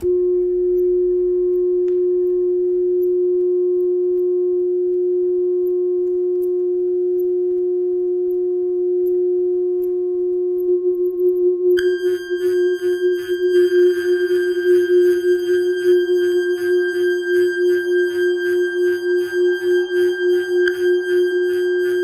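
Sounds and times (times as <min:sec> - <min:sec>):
loud electronic drone: 0:11.8 - 0:22.0.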